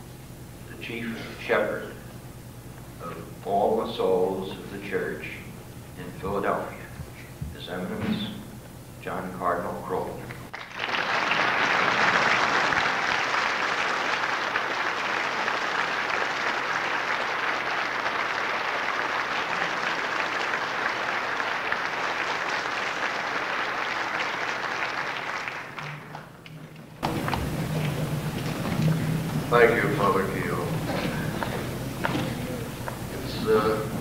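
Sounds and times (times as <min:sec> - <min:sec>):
large audience applauding: 0:10.5 - 0:34.0.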